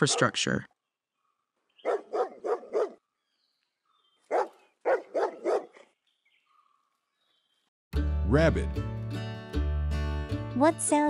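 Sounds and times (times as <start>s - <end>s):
dog barking: 0.0s - 0.4s, 1.8s - 3.0s, 4.3s - 5.9s.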